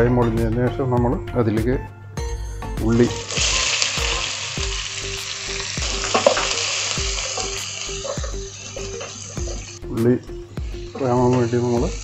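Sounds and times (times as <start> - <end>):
onions sizzling in hot oil: 3.0 - 9.9, 10.5 - 12.0.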